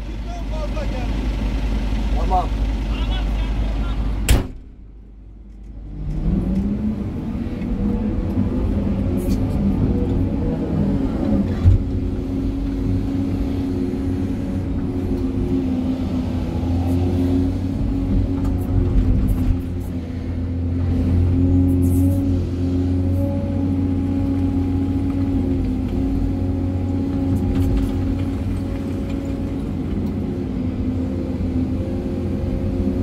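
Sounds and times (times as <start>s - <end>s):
excavator engine and hydraulics: 0.0s - 33.0s
sharp knock: 4.3s - 4.8s.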